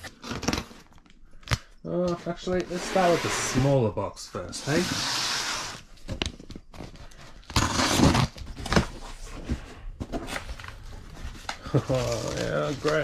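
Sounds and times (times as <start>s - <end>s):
tape ripping from cardboard: 7.5s - 8.9s.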